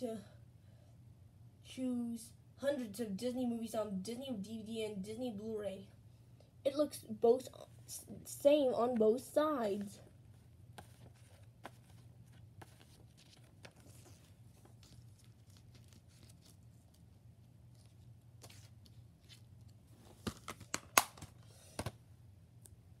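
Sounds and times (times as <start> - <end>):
paper and plastic case rustling: 10.8 - 17.0.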